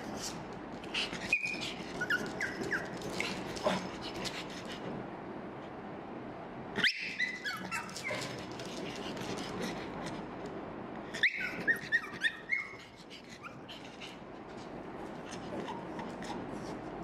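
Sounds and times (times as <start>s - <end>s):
dog whining and yelping: 0.9s - 3.8s, 6.8s - 8.6s, 11.1s - 14.2s.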